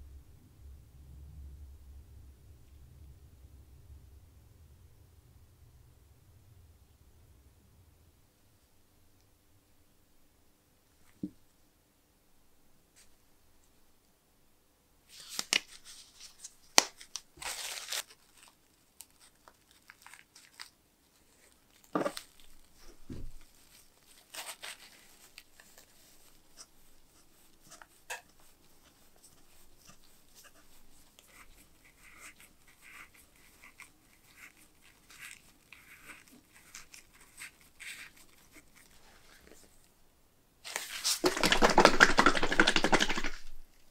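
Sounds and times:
paper towel crinkling and rubbing: 0:15.1 - 0:39.8, 0:40.6 - 0:43.9.

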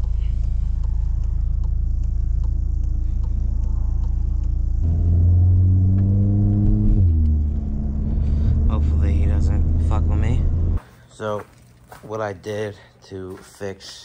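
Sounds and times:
car engine accelerating: 0:00.0 - 0:10.8.

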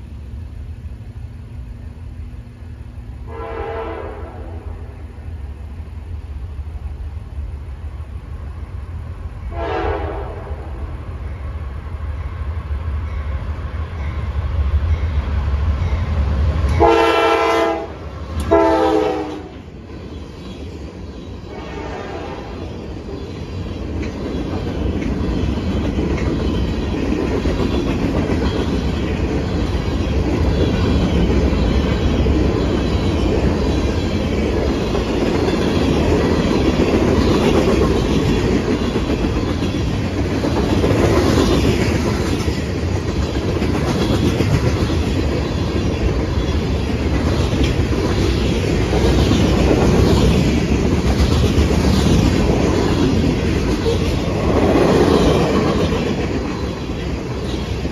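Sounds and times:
train wheels rumbling on rails: 0:00.0 - 0:57.9
clickety-clack over rail joints: 0:14.8 - 0:21.8, 0:22.4 - 0:57.9.

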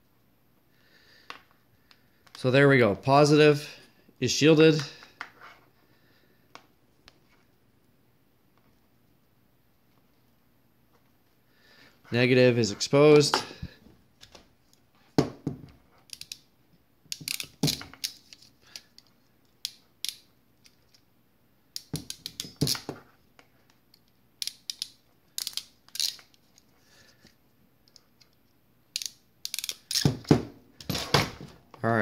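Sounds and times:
ratcheting crimping tool clicking: 0:16.1 - 0:16.4, 0:17.1 - 0:18.3, 0:24.4 - 0:26.4, 0:28.9 - 0:30.1.

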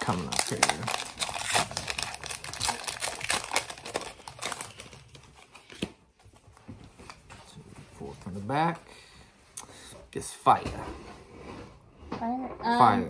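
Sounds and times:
foil wrapper tearing and crinkling: 0:00.0 - 0:05.5.

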